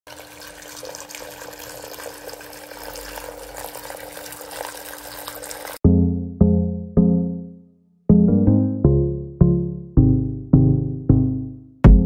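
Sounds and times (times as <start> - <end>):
fountain water trickling and splashing: 0.1 - 5.8
piano-like background music: 5.8 - 12.0.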